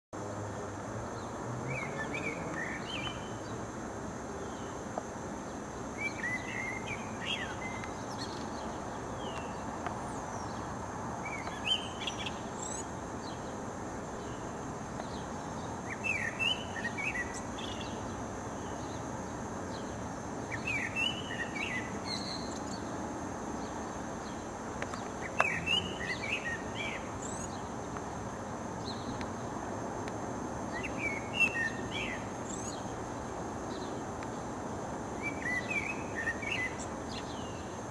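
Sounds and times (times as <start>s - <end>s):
low background noise: 0.2s - 37.9s
blackbird singing: 1.6s - 3.6s, 6.0s - 10.6s, 11.2s - 13.5s, 14.2s - 19.0s, 20.5s - 22.9s, 23.6s - 27.7s, 30.7s - 32.9s, 35.2s - 37.8s.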